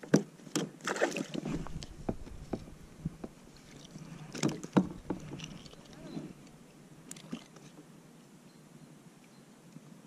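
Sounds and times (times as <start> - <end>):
short noisy rush: 1.4 - 7.0
fishing rod and reel knocking: 4.3 - 7.6.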